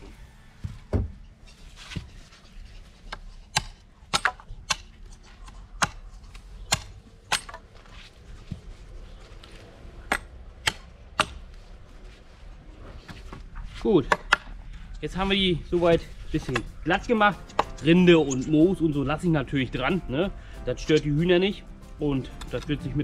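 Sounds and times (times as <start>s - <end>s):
machete chopping wood: 3.1s - 4.9s, 5.8s - 7.6s, 10.1s - 11.4s.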